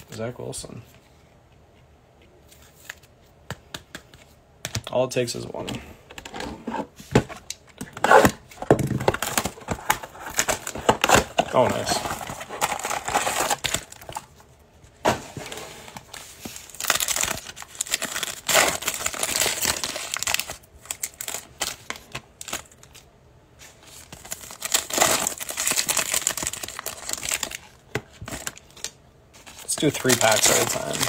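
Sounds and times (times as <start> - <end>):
foil wrappers crinkling and tearing: 9.1 - 14.3, 16.4 - 23.1, 23.9 - 31.0.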